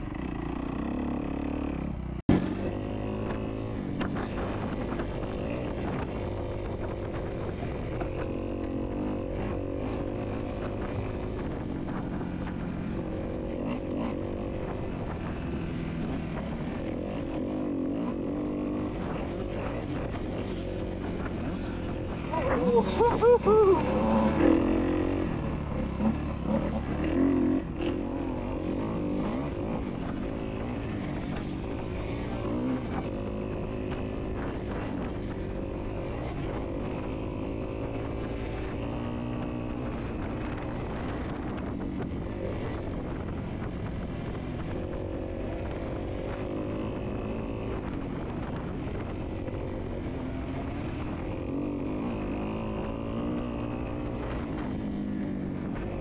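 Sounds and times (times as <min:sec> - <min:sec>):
dirt bike engine revving: 0:00.0 - 0:41.6.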